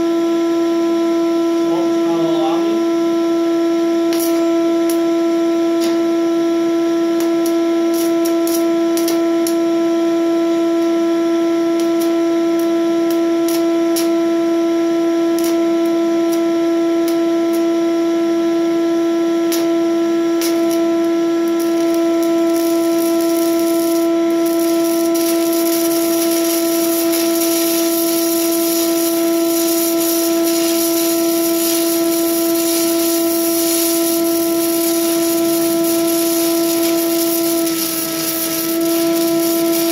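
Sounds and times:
shop vacuum droning whine: 0.0 - 39.9
welding arc crackling hiss: 4.1 - 5.1, 5.8 - 6.2, 7.1 - 9.7, 11.8 - 14.2, 15.3 - 17.7, 19.5 - 19.8, 20.4 - 39.9.

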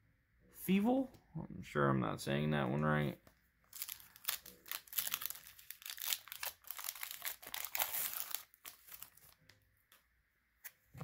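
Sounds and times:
foil wrapper crinkling: 3.7 - 9.6.

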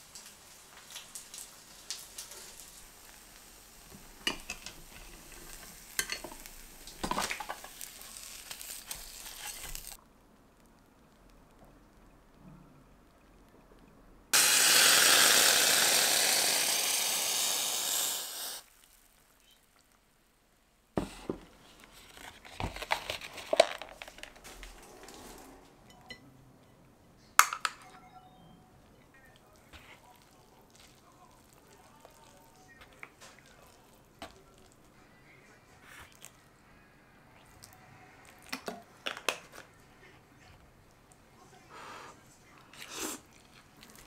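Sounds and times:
stream of water running: 0.0 - 10.0, 14.3 - 18.9
kitchenware clicking and clattering: 4.2 - 7.8, 22.3 - 26.3, 27.4 - 27.9.

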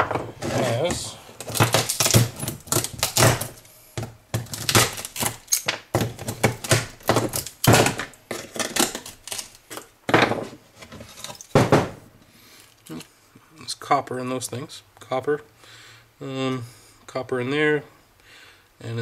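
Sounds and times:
pliers cracking circuit board: 1.4 - 3.6, 4.4 - 9.9.

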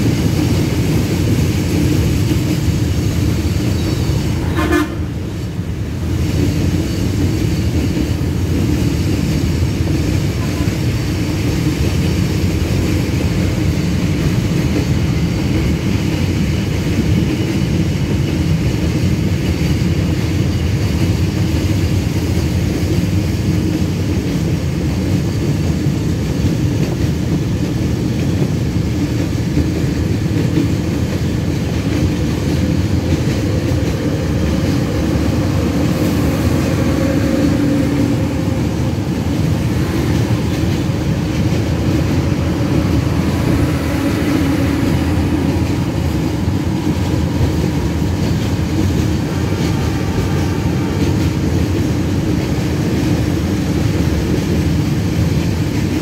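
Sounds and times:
train wheels rumbling on rails: 0.0 - 56.0
locomotive horn: 4.4 - 5.2, 10.4 - 10.8.

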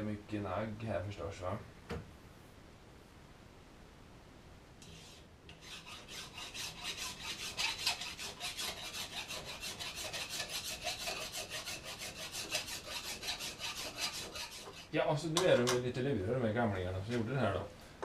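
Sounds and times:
hand file rasping on metal: 4.8 - 15.0.

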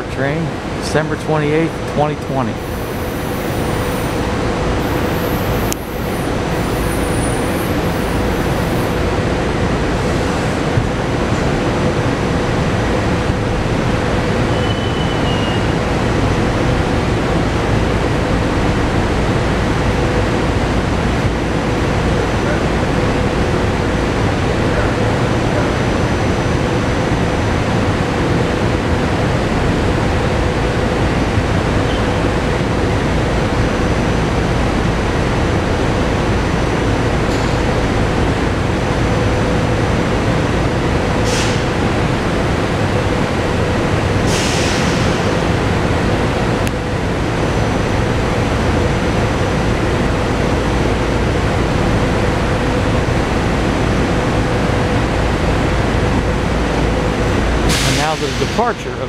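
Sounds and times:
electric train humming: 2.5 - 44.4
air hissing: 57.7 - 58.7.

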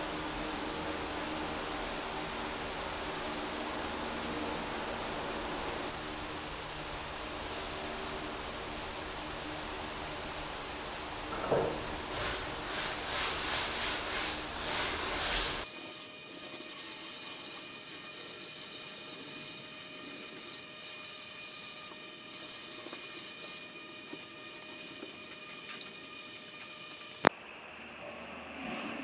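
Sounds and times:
steady sanding hiss: 0.0 - 27.3
hand sanding wood: 12.0 - 27.3.

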